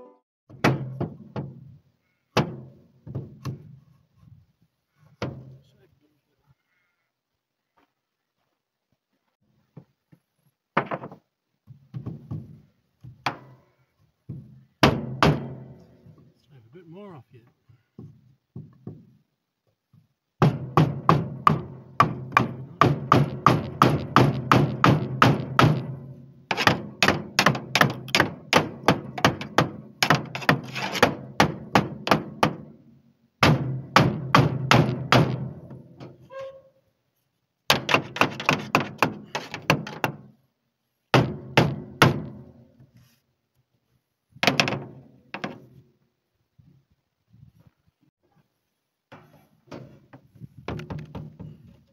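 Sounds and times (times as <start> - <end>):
hammer striking timber: 0.5 - 1.6, 2.4 - 3.6, 14.3 - 15.8, 20.4 - 32.7, 33.4 - 35.9, 37.7 - 40.4, 41.1 - 42.5, 44.4 - 45.7.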